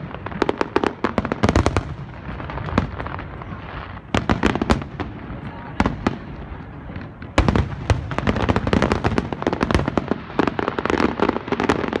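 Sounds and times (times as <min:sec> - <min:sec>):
crackling firework pops: 0:00.0 - 0:12.0
firework bangs: 0:00.0 - 0:12.0.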